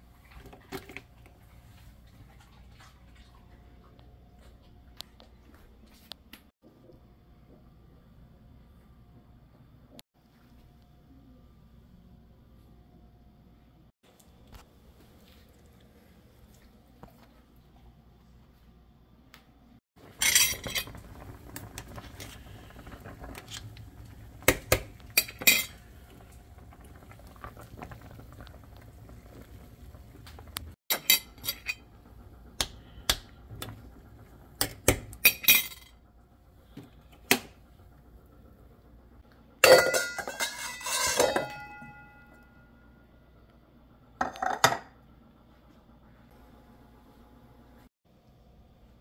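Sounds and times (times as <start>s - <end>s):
utensil clinking against dish: 39.6s - 42.1s
dish clattering and ringing: 39.6s - 42.6s.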